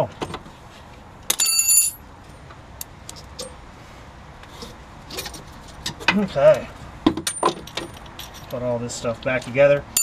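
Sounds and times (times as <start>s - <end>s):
metal part clanking and ringing: 1.3s - 2.0s.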